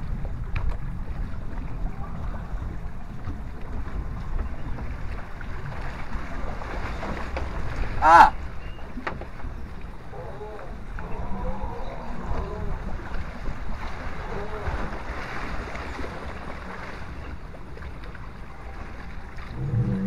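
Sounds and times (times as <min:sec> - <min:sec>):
rushing water: 0:00.0 - 0:20.0
wind on microphone: 0:00.0 - 0:20.0
person shouting: 0:08.0 - 0:08.4.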